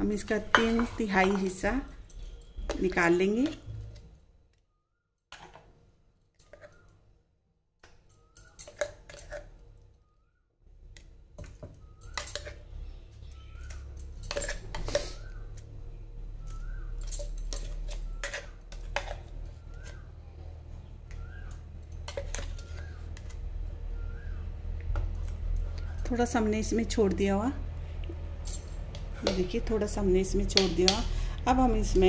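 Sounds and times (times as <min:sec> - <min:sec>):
spoon scraping a grinder jar: 0:00.2 - 0:04.1, 0:06.4 - 0:06.8, 0:08.5 - 0:09.6, 0:11.9 - 0:12.7, 0:13.4 - 0:15.4, 0:16.5 - 0:20.0, 0:22.0 - 0:23.4
low steady hum: 0:10.7 - 0:32.0.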